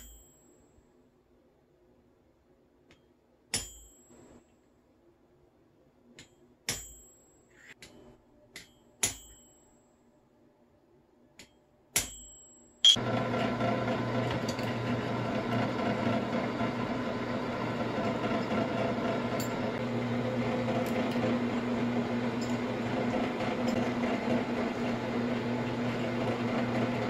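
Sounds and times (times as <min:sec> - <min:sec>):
drill press motor humming: 0:12.9 - 0:27.0.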